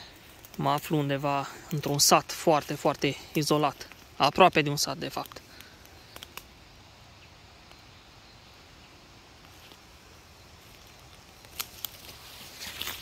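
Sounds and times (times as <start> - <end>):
footsteps crunching on dry leaves: 9.4 - 13.0.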